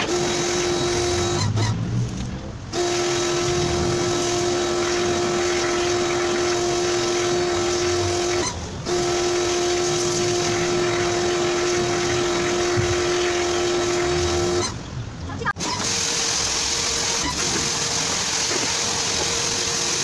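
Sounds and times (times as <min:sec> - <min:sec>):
pressure washer motor hum: 0:00.0 - 0:14.8, 0:15.6 - 0:20.0
water spraying hiss: 0:02.7 - 0:14.6.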